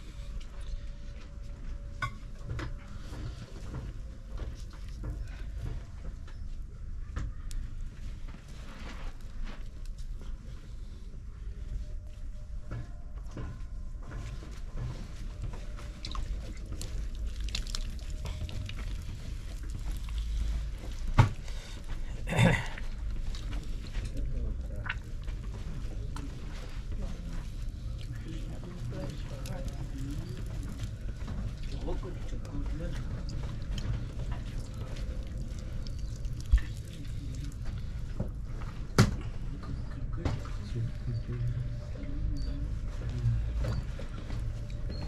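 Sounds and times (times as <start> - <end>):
wet clay squelching: 15.1 - 22.1, 22.8 - 38.8.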